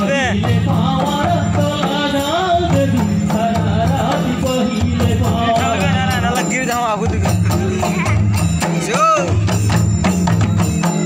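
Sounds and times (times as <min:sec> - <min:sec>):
voices singing: 0:00.0 - 0:09.4
hand drums and percussion: 0:00.0 - 0:11.0.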